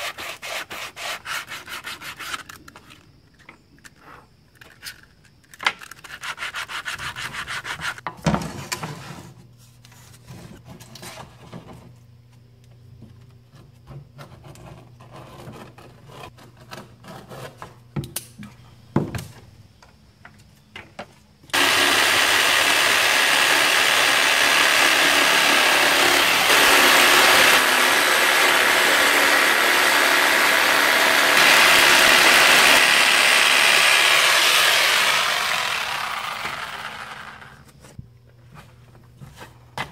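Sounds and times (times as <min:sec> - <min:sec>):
wood sanding by hand: 0:00.0 - 0:02.4, 0:06.2 - 0:08.0, 0:21.6 - 0:37.5
electric saw cutting wood: 0:21.5 - 0:37.7.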